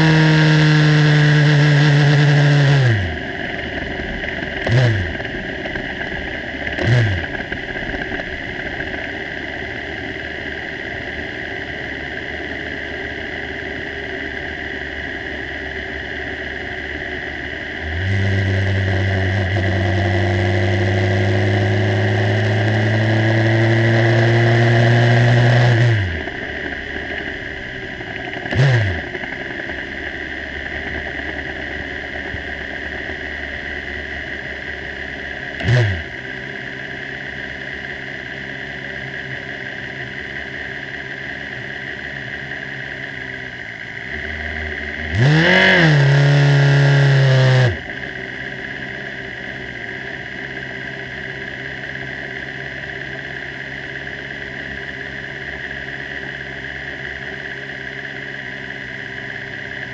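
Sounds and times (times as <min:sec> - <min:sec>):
race car engine revving: 0:00.0 - 0:05.8, 0:06.7 - 0:07.6, 0:17.8 - 0:26.7, 0:27.7 - 0:29.6, 0:35.6 - 0:36.2, 0:44.0 - 0:48.0.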